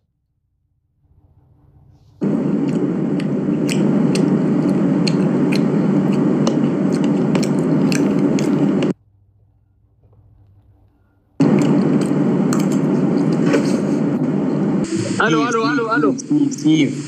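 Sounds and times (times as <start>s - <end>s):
close-up chewing and munching: 2.2s - 9.0s, 9.9s - 13.9s.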